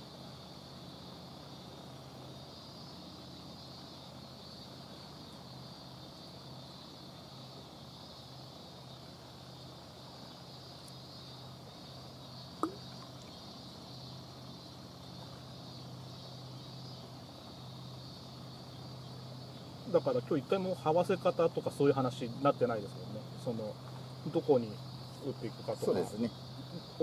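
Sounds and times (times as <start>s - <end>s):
high-pitched insect buzz: 0.0s - 27.0s
low even hum: 0.0s - 27.0s.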